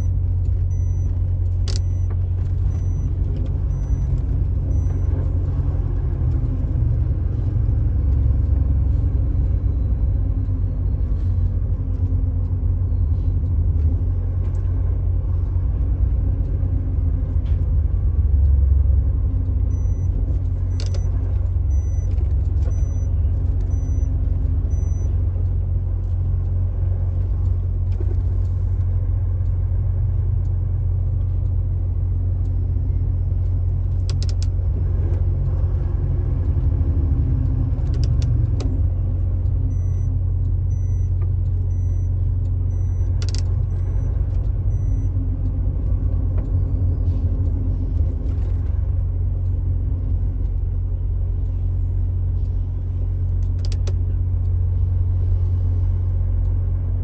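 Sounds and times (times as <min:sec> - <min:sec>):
vehicle driving on highway: 0:00.0 - 0:57.0
faint high beep: 0:01.7 - 0:04.1.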